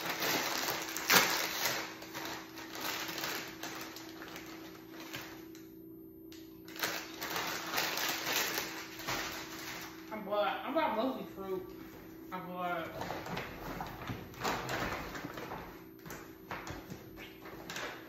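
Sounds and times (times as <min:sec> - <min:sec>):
plastic snack bag crinkling: 0:00.0 - 0:05.5, 0:06.6 - 0:10.2, 0:12.9 - 0:15.7.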